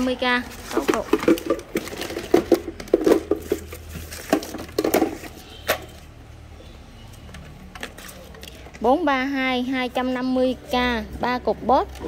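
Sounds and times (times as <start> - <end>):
hard plastic clattering and knocking: 0.7 - 6.0.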